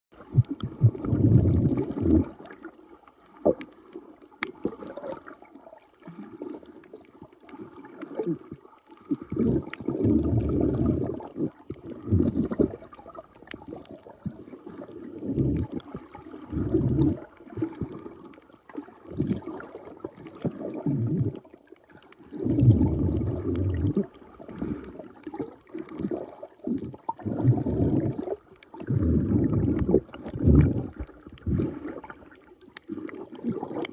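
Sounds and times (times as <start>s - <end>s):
muffled underwater gurgling: 0.1s - 33.9s
faint clicks: 12.8s - 14.4s.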